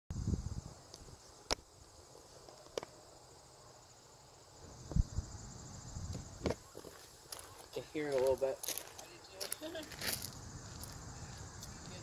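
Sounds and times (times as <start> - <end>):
crickets chirring: 0.1 - 12.0.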